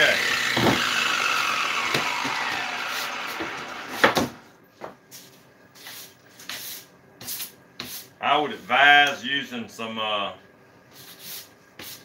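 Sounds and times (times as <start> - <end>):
angle grinder winding down: 0.0 - 4.4.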